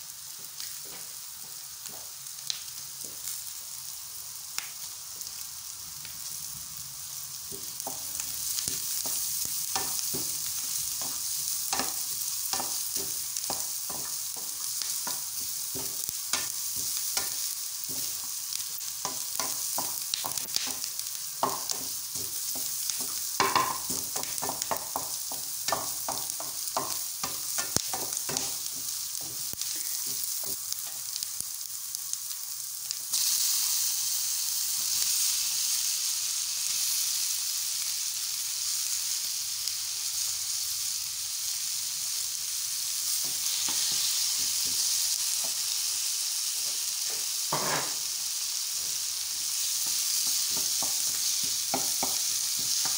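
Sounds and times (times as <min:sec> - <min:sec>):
meat and onions sizzling: 0:00.0 - 0:52.9.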